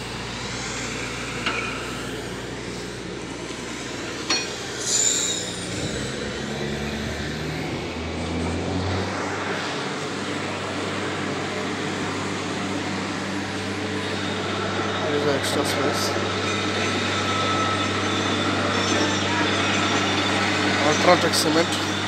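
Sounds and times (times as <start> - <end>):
vehicle engine humming: 0.0 - 22.0
brief high squeak: 4.8 - 5.7.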